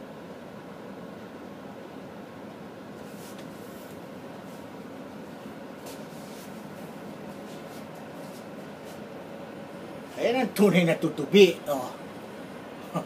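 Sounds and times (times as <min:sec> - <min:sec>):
soft rustles: 0:03.0 - 0:09.1.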